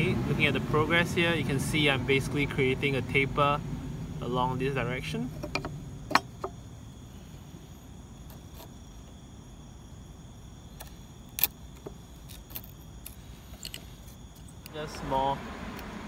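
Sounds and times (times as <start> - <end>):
chisel scraping wood: 8.2 - 8.8.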